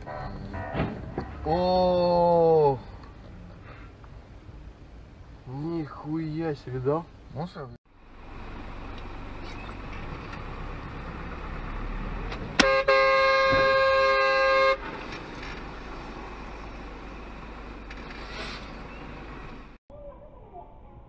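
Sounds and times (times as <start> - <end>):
engine and road noise: 0.0 - 19.8
vehicle horn: 12.6 - 14.8.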